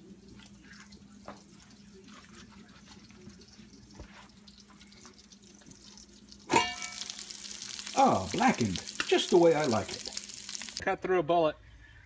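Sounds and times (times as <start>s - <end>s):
meat sizzling in a pan: 2.9s - 10.8s.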